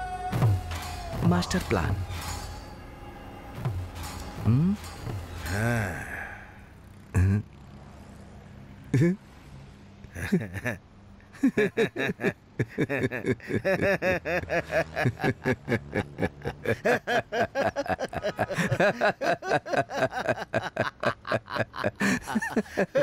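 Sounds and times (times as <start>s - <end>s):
men laughing hard: 10.1s - 23.0s.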